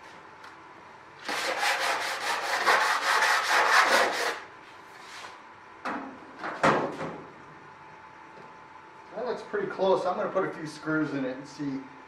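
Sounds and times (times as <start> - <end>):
metal edge scraping on sandpaper: 1.2 - 4.4.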